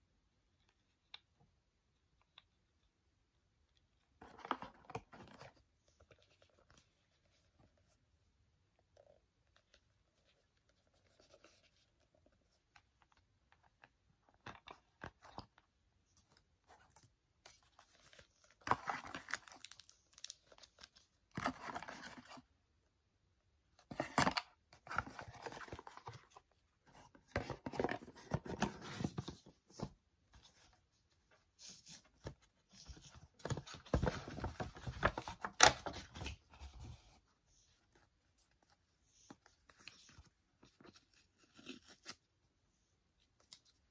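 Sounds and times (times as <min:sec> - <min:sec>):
paper rustling and crinkling: 0:23.9 - 0:42.3.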